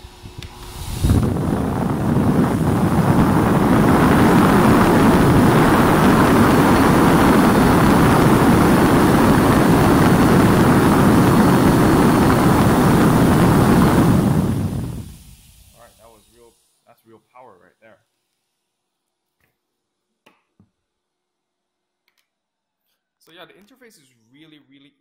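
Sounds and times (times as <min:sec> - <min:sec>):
dog dryer blowing air: 0:00.0 - 0:16.2.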